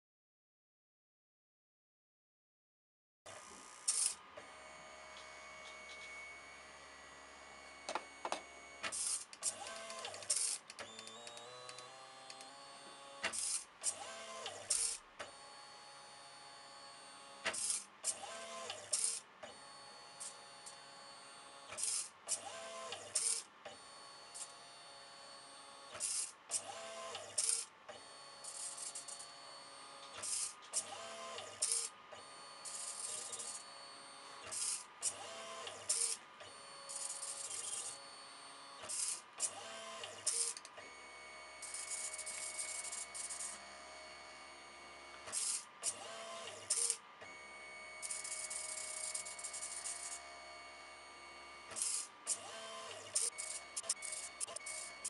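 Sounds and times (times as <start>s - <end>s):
stepper motor whine: 3.3s - 22.1s, 22.7s - 55.0s
short loud motor bursts: 51.7s - 55.0s.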